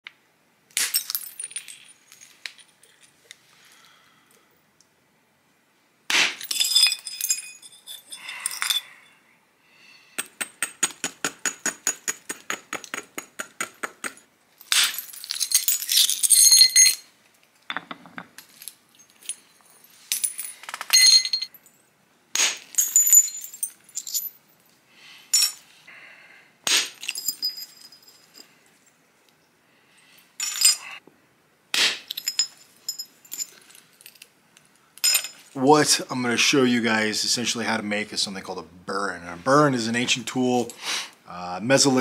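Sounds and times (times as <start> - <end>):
stone striking flint: 6.1 - 6.5, 10.2 - 15.1, 22.3 - 22.8, 26.6 - 27.1.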